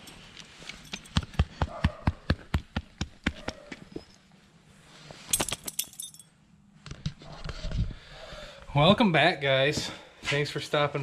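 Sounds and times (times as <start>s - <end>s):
footsteps and paw taps on concrete: 0.4s - 4.1s
chain-link gate jangling: 5.3s - 6.3s.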